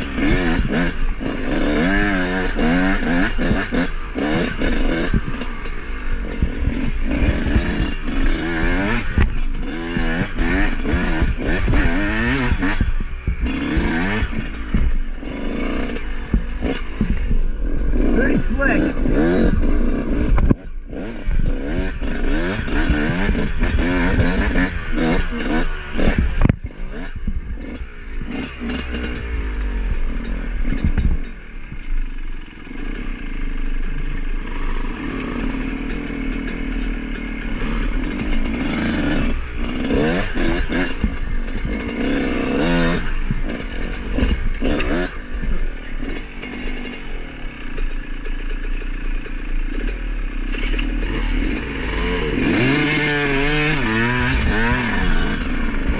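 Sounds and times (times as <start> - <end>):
bike rattling over bumps: 0.0 - 55.9
dirt bike engines revving: 0.0 - 55.9.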